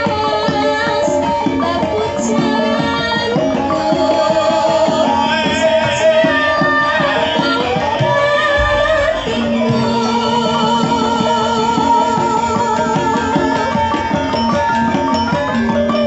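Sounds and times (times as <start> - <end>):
woman singing with vibrato: 0.0 - 14.3
drum strokes: 3.8 - 16.0
gamelan playing: 8.4 - 16.0.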